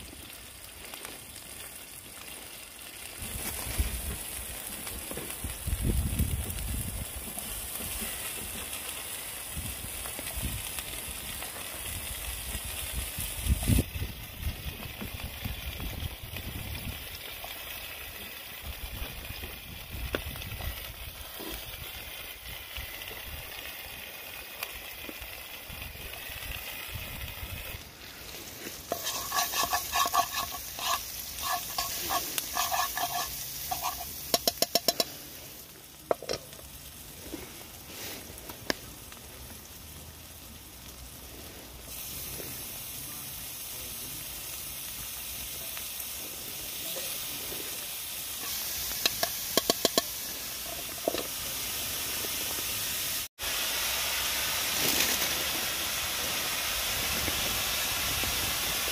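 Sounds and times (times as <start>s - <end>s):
food sizzling in a pan: 0.0s - 58.9s
utensil scraping a pan: 28.5s - 35.2s.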